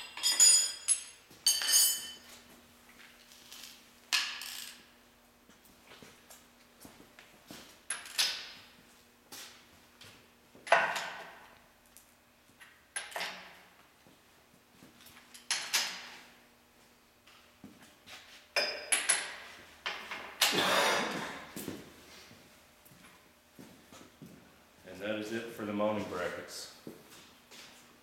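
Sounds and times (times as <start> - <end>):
wrench clanking on metal: 0.0 - 2.3.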